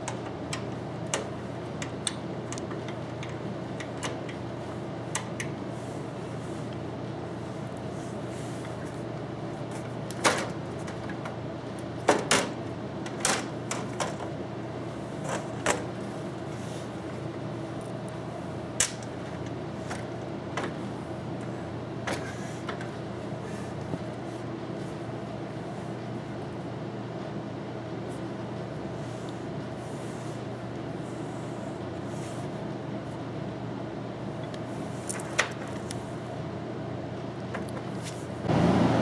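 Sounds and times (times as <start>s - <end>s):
steady low hum: 0.0s - 39.0s
clicks and knocks of computer case: 12.0s - 14.3s.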